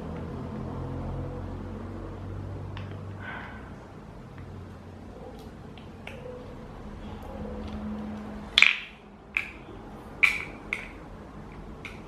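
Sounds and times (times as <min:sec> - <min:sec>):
hard parts clicking and clacking: 0:07.6 - 0:12.0.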